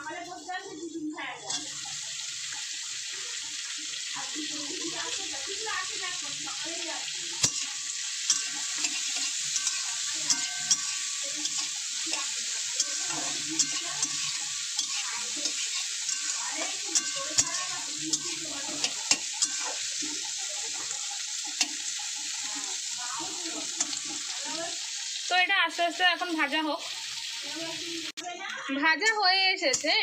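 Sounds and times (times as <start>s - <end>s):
vegetables sizzling in a pan: 0.0s - 30.0s
spatula clicking against pan: 5.9s - 24.8s, 28.2s - 30.0s.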